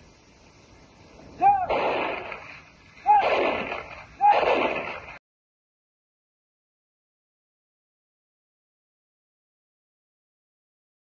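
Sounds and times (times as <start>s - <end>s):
rifle volleys cracking: 1.6s - 5.2s.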